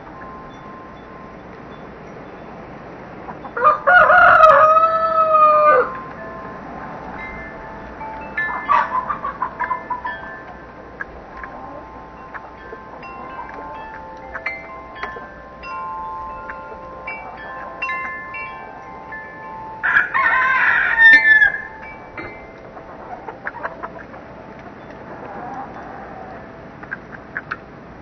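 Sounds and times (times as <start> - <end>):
wind chimes ringing: 0.0 - 28.0
rooster crowing: 3.6 - 6.1, 19.8 - 22.0.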